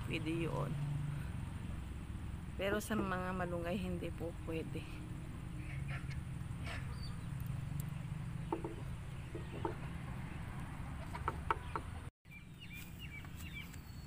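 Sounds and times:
chickens clucking: 0:05.6 - 0:07.0, 0:11.0 - 0:11.9.

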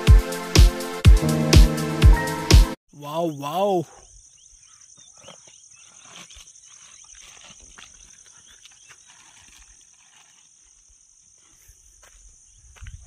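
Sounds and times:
insects buzzing: 0:03.1 - 0:13.0.

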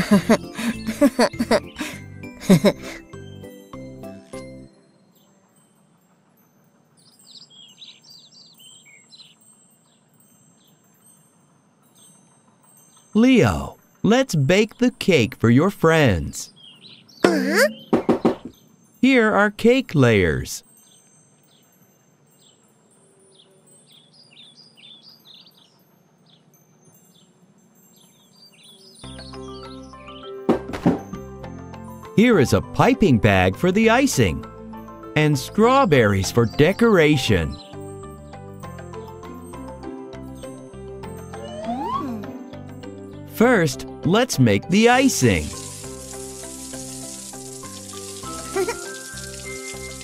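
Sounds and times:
small birds chirping: 0:00.0 - 0:03.6, 0:05.0 - 0:13.8, 0:16.0 - 0:19.4, 0:20.0 - 0:30.4, 0:35.5 - 0:43.7, 0:44.7 - 0:50.0
bird chirps: 0:07.0 - 0:11.2, 0:16.5 - 0:18.7, 0:22.4 - 0:30.4, 0:41.2 - 0:42.5
music cue: 0:40.2 - 0:50.0.

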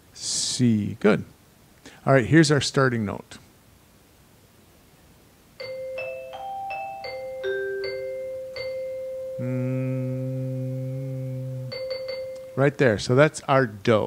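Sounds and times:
mallet percussion notes: 0:05.6 - 0:09.4, 0:11.7 - 0:12.6.

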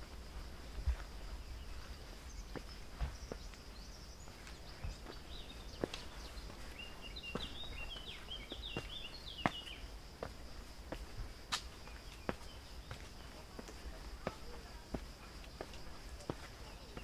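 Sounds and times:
footsteps on stone steps: 0:00.0 - 0:17.0
songbird twittering: 0:01.2 - 0:10.0, 0:11.8 - 0:13.6.

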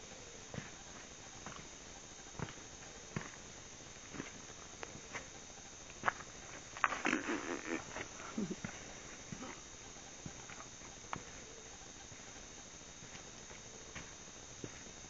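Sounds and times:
footsteps scuffing on rocky trail: 0:02.4 - 0:03.4, 0:04.0 - 0:05.3, 0:13.0 - 0:14.9.

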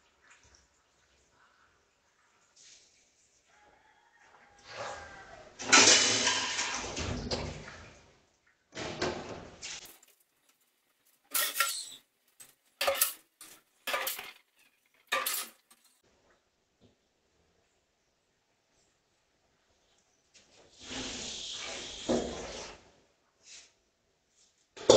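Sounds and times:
dishes and utensils clattering: 0:05.6 - 0:07.5, 0:11.1 - 0:16.0.

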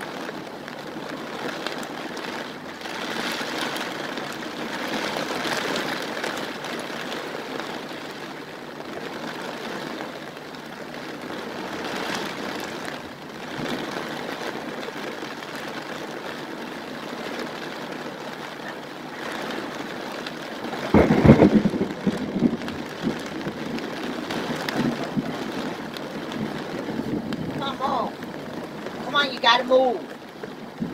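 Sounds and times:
heavy rain pouring: 0:00.0 - 0:30.9
loud low rumble: 0:20.9 - 0:23.6.

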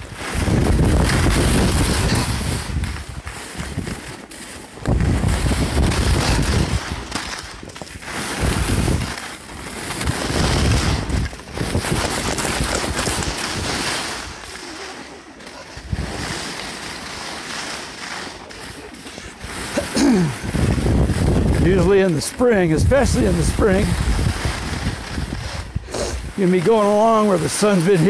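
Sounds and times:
wind rushing over microphone: 0:00.0 - 0:04.2, 0:04.8 - 0:14.5, 0:15.8 - 0:16.6, 0:20.2 - 0:26.8
sharp crackles: 0:00.0 - 0:28.0
skis scraping on snow: 0:00.0 - 0:28.0.

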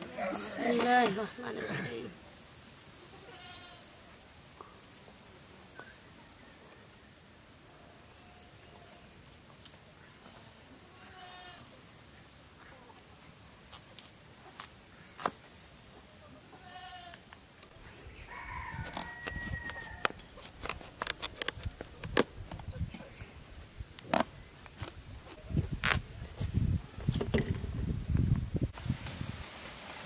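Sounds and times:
goat bleating: 0:03.1 - 0:03.8, 0:10.8 - 0:11.7, 0:16.5 - 0:17.2
rooster crowing: 0:18.2 - 0:20.2.

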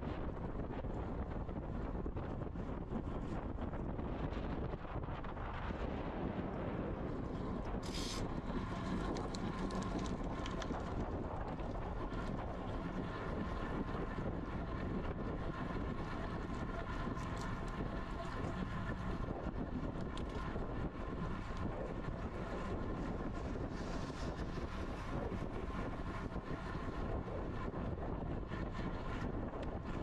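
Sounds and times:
wind rush on microphone: 0:00.0 - 0:30.0
short hiss: 0:07.8 - 0:08.2.

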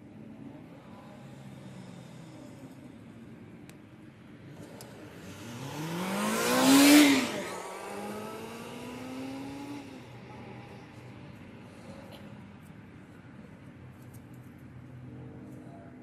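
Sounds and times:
car accelerating past: 0:04.4 - 0:12.0.

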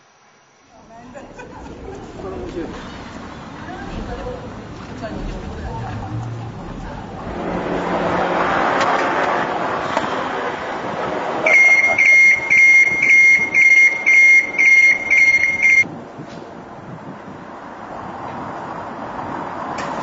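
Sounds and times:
steady rushing noise: 0:00.8 - 0:11.5
high electronic warning beeps: 0:11.5 - 0:15.9.

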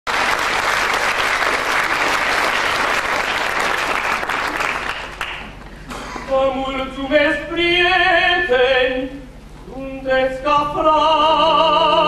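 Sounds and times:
audience applauding: 0:00.1 - 0:05.6.

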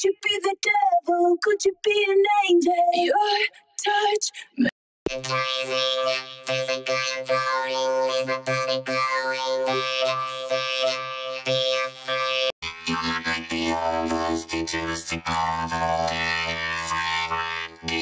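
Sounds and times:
robotic vocoder singing voice: 0:04.6 - 0:18.0.

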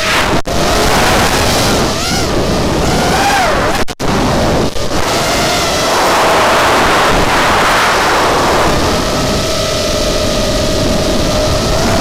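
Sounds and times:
drone motor whine: 0:00.0 - 0:12.0
rush of prop wash and wind: 0:00.0 - 0:12.0.

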